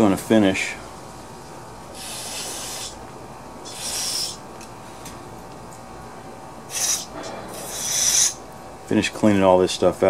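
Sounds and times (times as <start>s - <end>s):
aerosol spray hissing: 2.0s - 3.0s, 3.7s - 4.4s, 6.7s - 8.4s.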